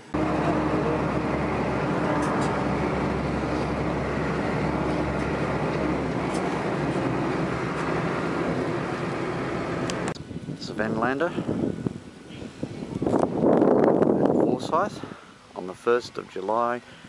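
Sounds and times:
low engine drone: 0.0s - 13.4s
vehicle rumble: 0.0s - 14.6s.

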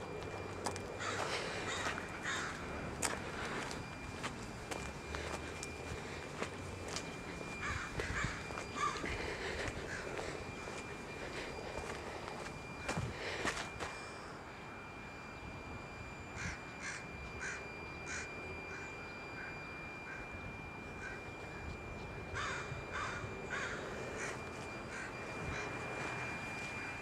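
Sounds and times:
faint high whine: 0.0s - 27.0s
bird calling: 1.0s - 3.8s, 7.0s - 12.2s, 16.4s - 27.0s.

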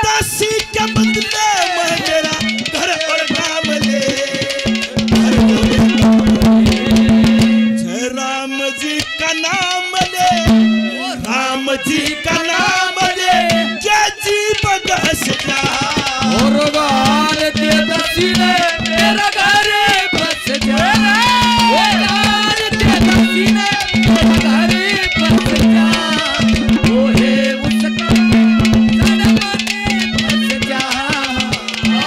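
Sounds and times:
hand drums: 0.0s - 8.0s, 9.0s - 32.0s
man singing: 0.0s - 32.0s
steady held note: 4.6s - 8.0s, 21.1s - 30.8s.

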